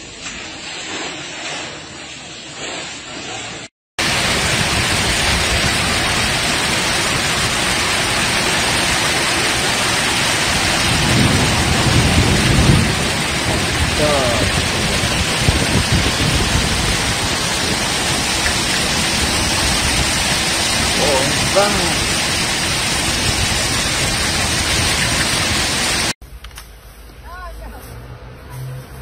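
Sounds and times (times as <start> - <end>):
hail and heavy rain: 4.0 - 26.2.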